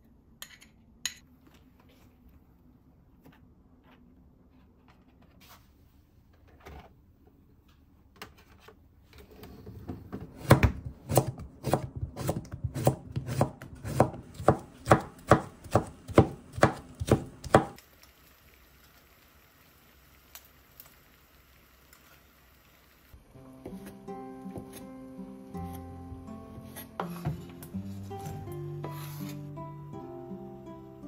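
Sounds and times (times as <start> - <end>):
knife chopping on wooden board: 10.4 - 17.8.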